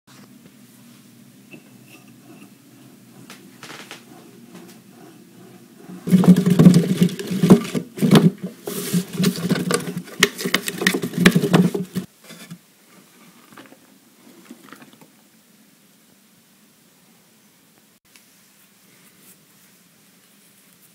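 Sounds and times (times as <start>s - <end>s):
apple grinder droning: 1.5s - 12.1s.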